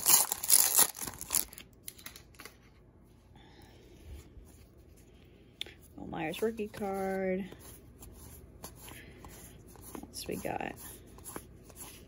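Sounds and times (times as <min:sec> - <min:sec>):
wrapper tearing and crinkling: 0:00.0 - 0:02.5
cards rustling and clicking: 0:00.0 - 0:02.8.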